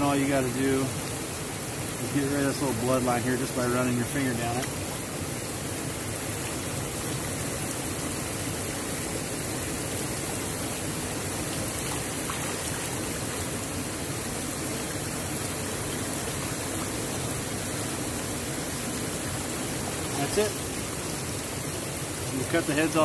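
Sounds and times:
running water rushing: 0:00.0 - 0:23.0.

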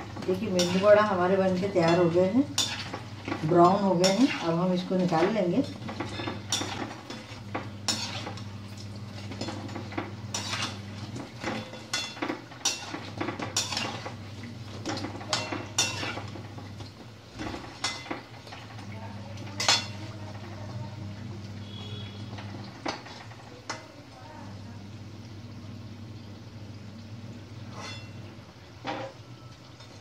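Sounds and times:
utensils scraping a steel pan: 0:00.2 - 0:08.5, 0:09.2 - 0:14.2, 0:15.2 - 0:16.3, 0:27.7 - 0:28.2.

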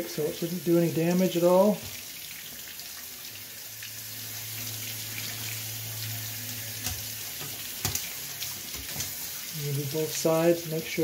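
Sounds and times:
faucet water running: 0:00.0 - 0:11.0
low steady hum: 0:03.4 - 0:08.7.

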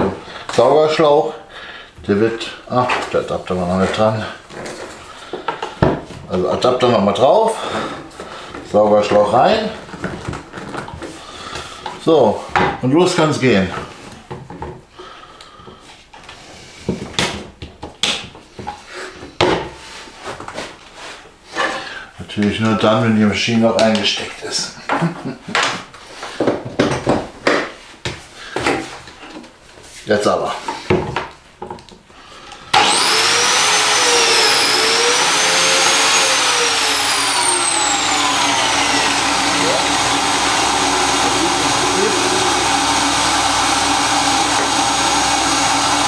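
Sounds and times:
biscuit joiner motor whining: 0:32.7 - 0:46.0.

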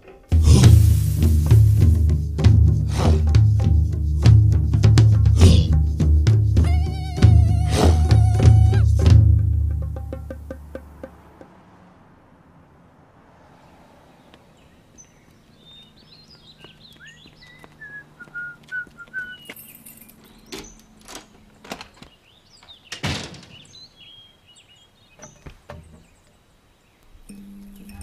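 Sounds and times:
thuds: 0:00.0 - 0:03.8, 0:22.9 - 0:23.7
birds chirping: 0:05.3 - 0:09.0, 0:13.7 - 0:28.0.

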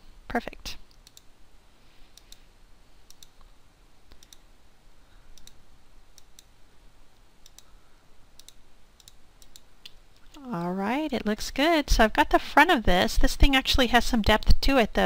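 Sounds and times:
mouse buttons clicking: 0:04.1 - 0:04.4, 0:05.4 - 0:06.5, 0:07.4 - 0:07.7, 0:08.4 - 0:10.0.

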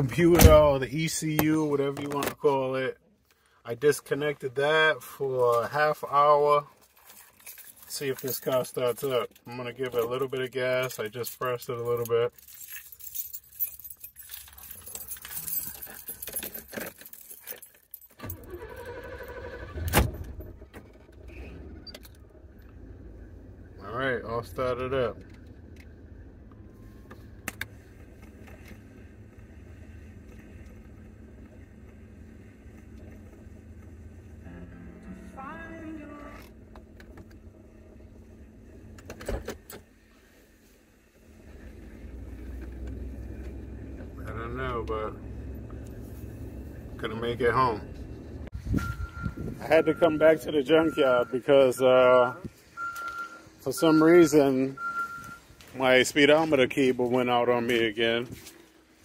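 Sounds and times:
car keys jangling: 0:06.7 - 0:10.4, 0:11.0 - 0:19.6
engine starter cranking: 0:18.2 - 0:22.5
car engine idling: 0:20.4 - 0:59.0.

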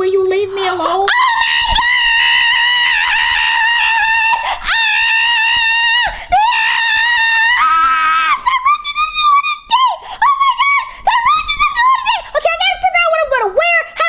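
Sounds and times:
girl screaming excitedly: 0:01.1 - 0:12.2.

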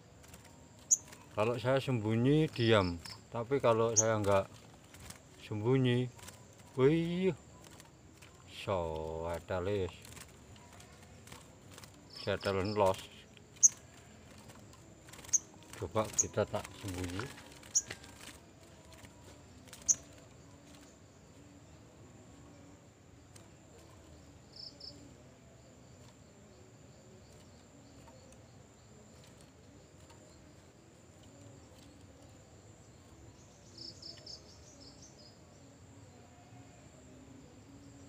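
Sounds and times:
high insect buzz: 0:00.0 - 0:38.0
high bird chirps: 0:00.8 - 0:01.6, 0:12.1 - 0:14.5, 0:15.1 - 0:18.2, 0:19.7 - 0:20.2.

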